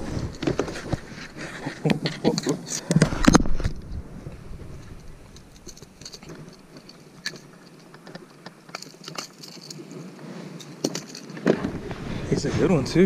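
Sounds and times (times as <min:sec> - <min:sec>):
fishing lure rattling against pliers: 0:05.0 - 0:10.0, 0:10.6 - 0:11.4.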